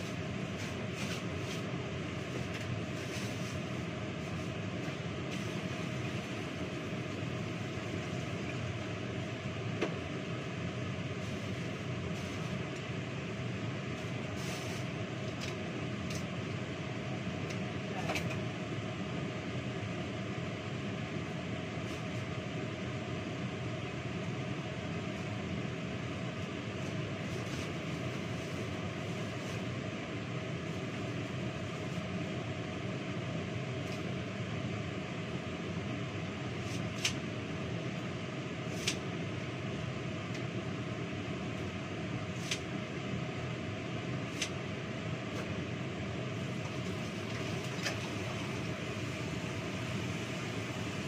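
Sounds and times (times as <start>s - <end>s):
electric fan whirring: 0.0s - 51.0s.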